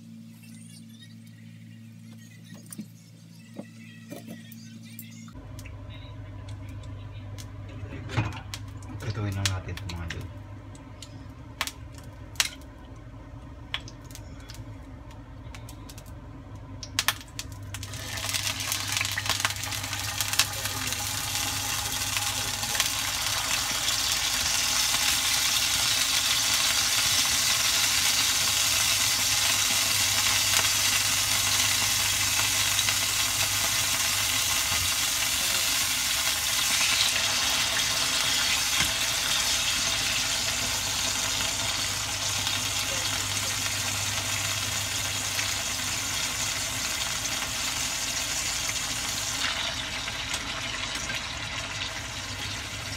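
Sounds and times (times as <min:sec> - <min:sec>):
meat sizzling in hot oil: 0:16.9 - 0:52.9.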